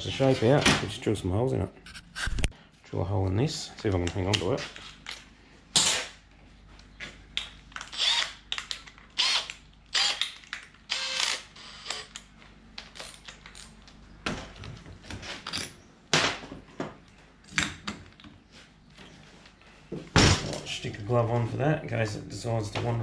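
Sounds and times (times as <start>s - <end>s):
cordless drill motor whir: 7.8s - 8.4s, 9.2s - 10.3s, 10.9s - 12.2s
drill chuck ratcheting: 7.8s - 8.4s, 9.2s - 12.2s.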